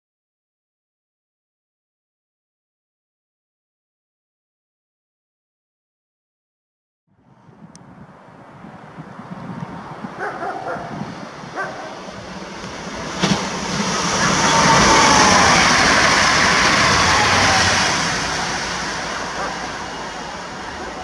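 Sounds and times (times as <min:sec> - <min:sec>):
train passing at speed: 0:08.2 - 0:21.0
whine falling in pitch: 0:12.6 - 0:21.0.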